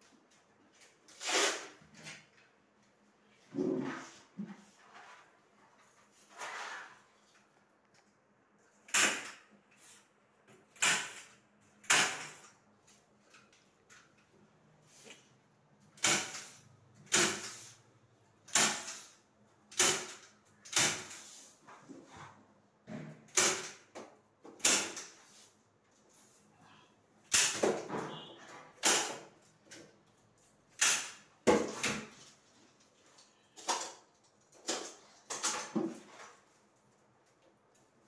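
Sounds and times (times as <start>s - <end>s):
velcro rasping and scraping: 1.1s - 1.7s.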